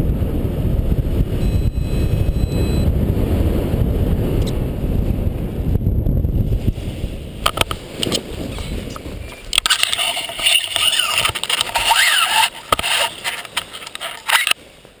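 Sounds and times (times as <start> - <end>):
wind rumbling on microphone: 0.0 - 15.0
rustling and clicking handling noise: 7.5 - 14.6.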